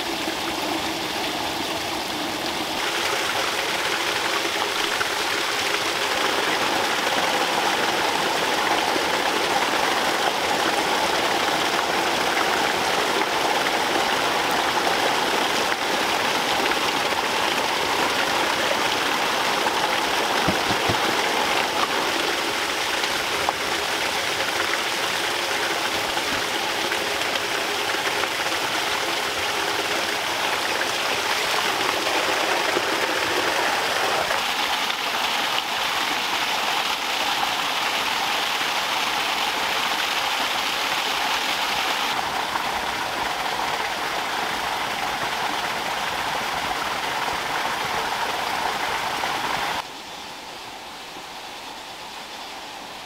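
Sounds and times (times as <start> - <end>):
water pouring into pond: 0.0 - 49.9.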